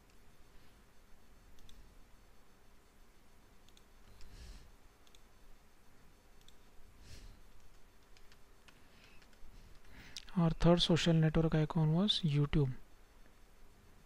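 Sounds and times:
computer mouse clicks: 0:01.5 - 0:01.8, 0:03.6 - 0:04.4, 0:05.0 - 0:05.3, 0:06.4 - 0:06.7, 0:07.5 - 0:10.3.

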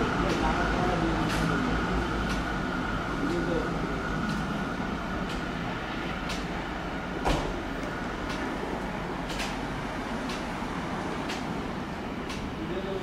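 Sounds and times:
diesel locomotive engine running: 0:00.0 - 0:13.0
sharp clicks: 0:06.2 - 0:06.5, 0:11.2 - 0:11.5.

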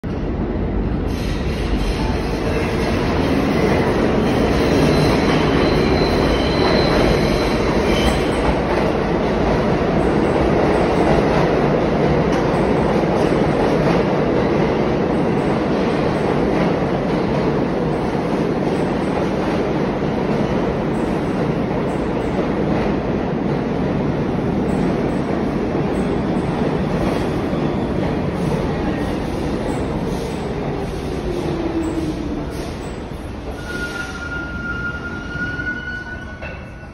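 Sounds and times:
subway wheels rumbling on rails: 0:00.0 - 0:36.9
high wheel squeal: 0:04.7 - 0:08.4, 0:33.5 - 0:36.4.

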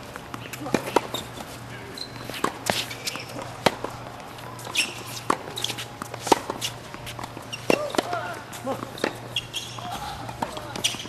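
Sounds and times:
tennis ball bounces: 0:00.0 - 0:11.0
tennis racket strikes: 0:04.6 - 0:09.2.

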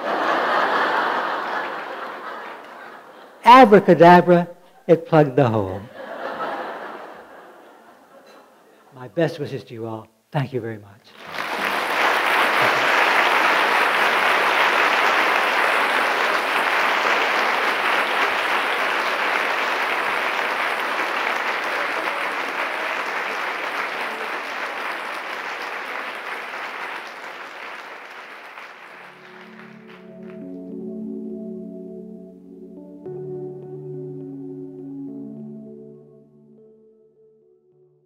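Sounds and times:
audience applauding: 0:00.0 - 0:04.0, 0:11.1 - 0:30.8
soft ringing music: 0:29.1 - 0:37.9.

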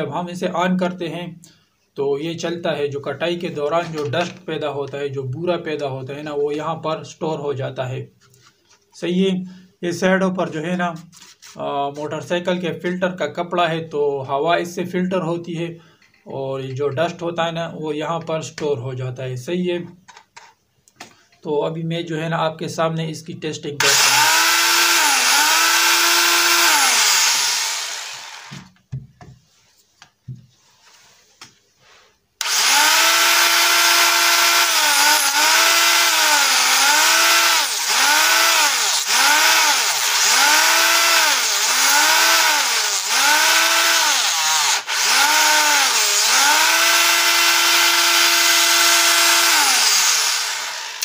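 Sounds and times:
high motor whine: 0:23.9 - 0:28.7, 0:32.4 - 0:51.0.

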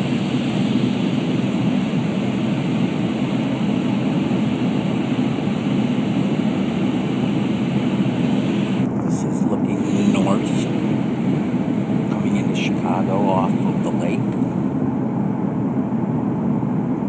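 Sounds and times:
airliner cabin engine rush: 0:00.0 - 0:17.0.

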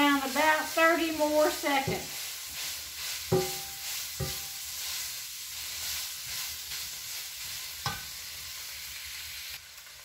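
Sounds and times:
sausage sizzling in a frying pan: 0:00.0 - 0:10.0
spatula knocking metal pan: 0:03.3 - 0:04.6, 0:07.8 - 0:08.1.

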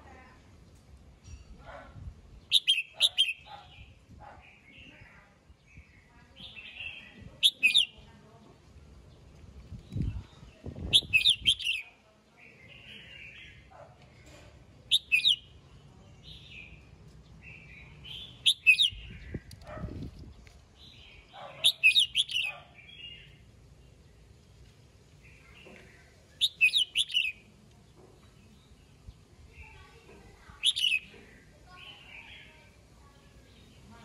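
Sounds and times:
bird whistling song phrases: 0:02.5 - 0:03.5, 0:06.4 - 0:07.9, 0:10.8 - 0:11.8, 0:14.9 - 0:15.4, 0:18.1 - 0:19.5, 0:21.6 - 0:23.2, 0:26.4 - 0:27.4, 0:30.6 - 0:31.1
bird chattering calls: 0:02.5 - 0:03.8, 0:06.5 - 0:08.0, 0:10.9 - 0:11.8, 0:14.9 - 0:15.4, 0:18.1 - 0:19.5, 0:21.4 - 0:23.3, 0:26.4 - 0:27.4, 0:30.6 - 0:31.4.

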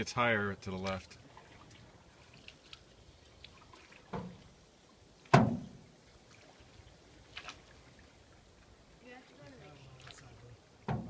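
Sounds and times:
faint water dribbles: 0:00.0 - 0:11.0
hollow knocks on canoe hull: 0:04.1 - 0:04.4, 0:05.3 - 0:05.8.

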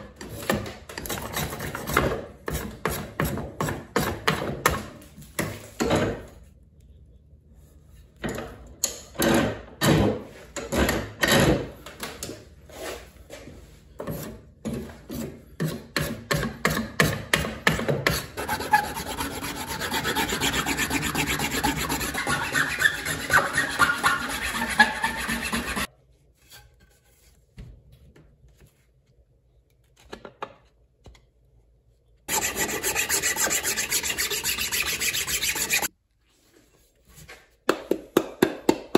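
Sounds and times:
rasp filing wood: 0:18.1 - 0:25.9, 0:32.3 - 0:35.9
scraping strokes across wood: 0:18.4 - 0:27.4, 0:32.3 - 0:35.9.

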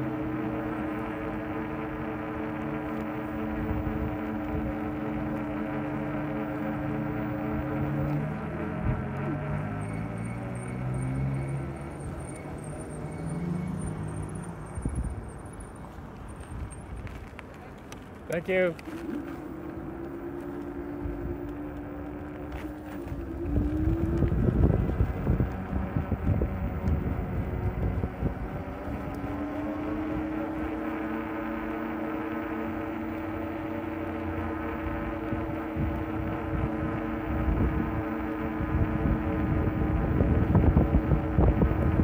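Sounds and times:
electric bike motor whining: 0:00.0 - 0:42.0
road rumble: 0:00.0 - 0:42.0
wind buffeting microphone: 0:18.1 - 0:42.0.

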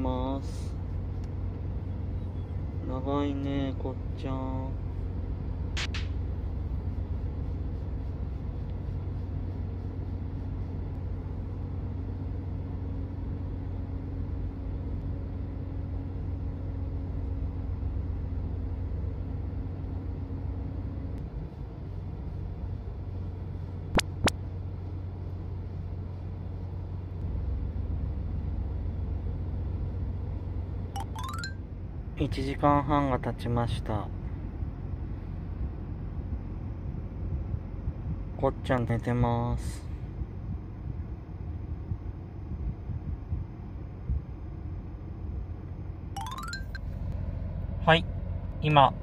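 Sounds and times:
car engine idling: 0:00.0 - 0:30.9
sharp clicks: 0:05.8 - 0:06.2.

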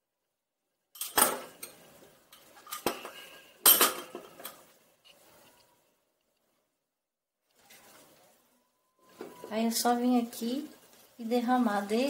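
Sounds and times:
utensils clinking: 0:01.0 - 0:04.7.

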